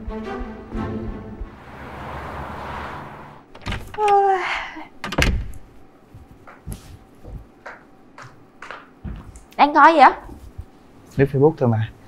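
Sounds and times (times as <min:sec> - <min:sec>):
door shutting thud: 0:03.5 - 0:04.1, 0:05.0 - 0:05.6
door click and squeak: 0:03.5 - 0:04.2
footsteps in slippers: 0:06.0 - 0:09.5.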